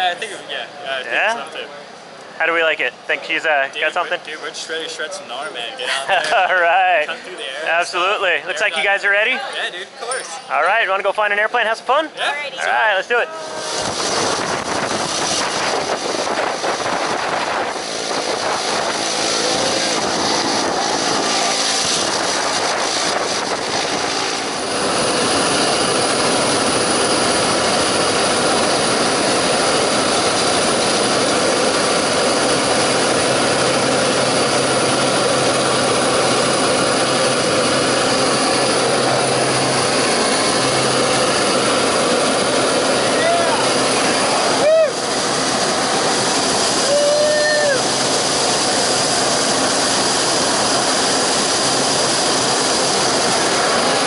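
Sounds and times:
turboprop engine running: 12.8 - 54.0.

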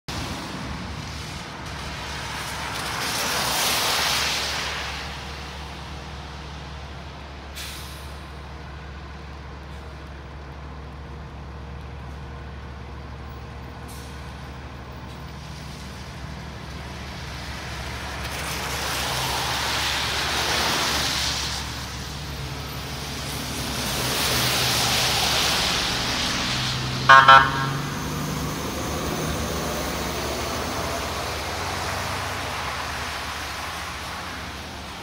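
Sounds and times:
tires hissing on wet pavement: 0.1 - 10.8, 13.5 - 35.0
air brake hisses: 7.6 - 8.2.

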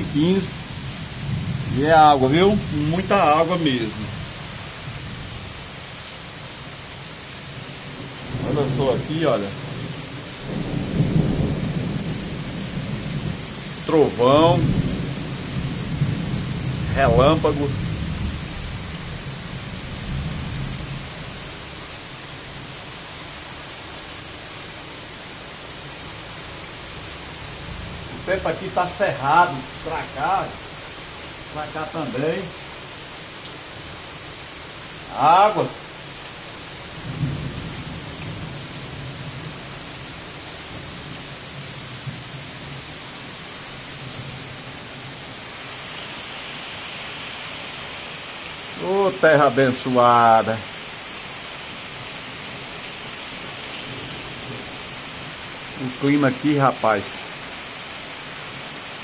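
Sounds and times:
low rumble of thunder: 0.0 - 3.1, 7.6 - 21.9, 26.2 - 32.2, 36.7 - 43.0, 53.8 - 55.8
heavy rain on cobblestones: 0.0 - 59.0.

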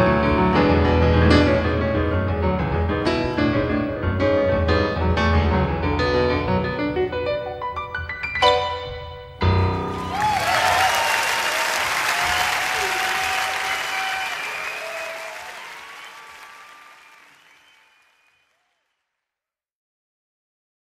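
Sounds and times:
audience applauding and cheering: 9.7 - 18.9.

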